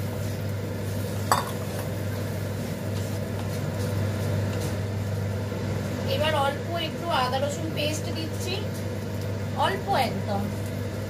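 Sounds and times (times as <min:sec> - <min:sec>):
utensil stirring in a pan: 0:00.0 - 0:05.1
steady low hum: 0:00.0 - 0:11.0.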